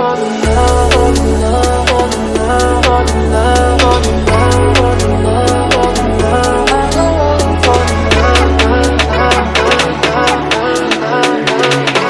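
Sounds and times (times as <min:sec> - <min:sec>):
pop music with beat and bass: 0:00.0 - 0:12.0.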